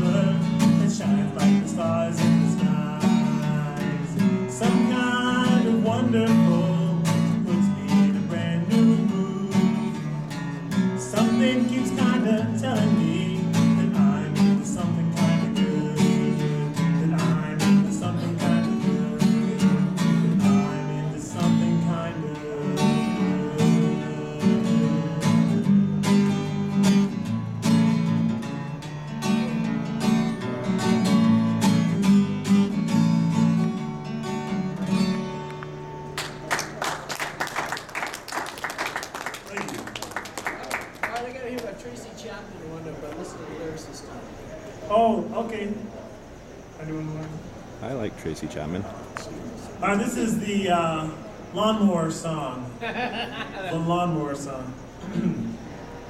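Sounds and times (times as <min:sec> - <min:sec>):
man singing: 0:00.0 - 0:10.2, 0:10.9 - 0:25.6
acoustic guitar strumming: 0:00.0 - 0:38.3.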